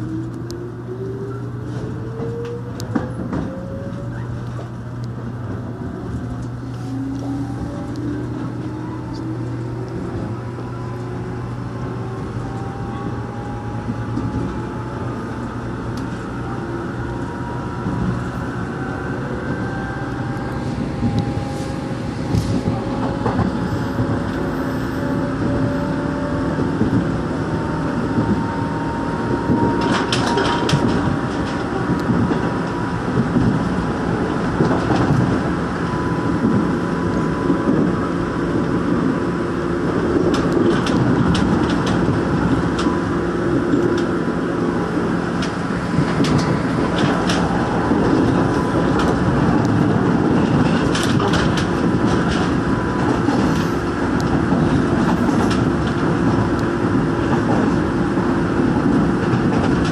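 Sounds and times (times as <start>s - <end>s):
electric train motor whine: 0.0s - 50.4s
train running rumble: 0.0s - 59.9s
wheels clacking over rail joints: 40.0s - 44.2s, 45.0s - 59.9s.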